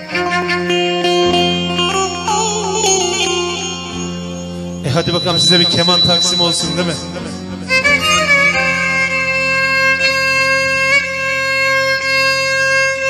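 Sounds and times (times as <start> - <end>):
violin playing long held notes: 0.0 - 13.0
steady low drone: 3.2 - 10.0.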